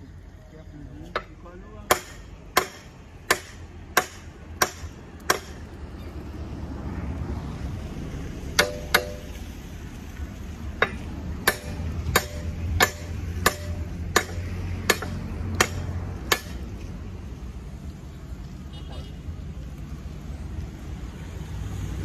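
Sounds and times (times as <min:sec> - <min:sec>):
hammer striking nails in wood: 0:08.6 - 0:09.3, 0:10.8 - 0:16.6.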